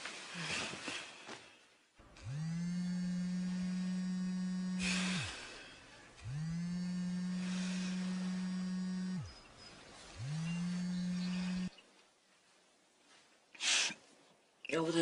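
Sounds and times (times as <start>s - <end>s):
bedsheets rustling: 0.0s - 1.9s
phone vibrating: 2.0s - 11.7s.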